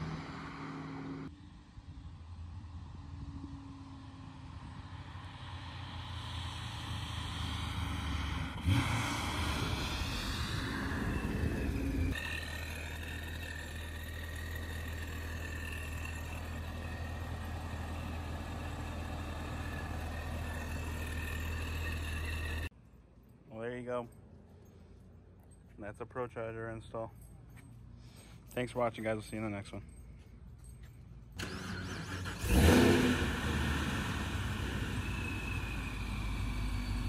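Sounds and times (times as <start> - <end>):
car engine drone: 0.0 - 1.4, 2.4 - 22.7, 29.9 - 37.0
supercharger high whine: 5.6 - 22.7, 31.4 - 37.0.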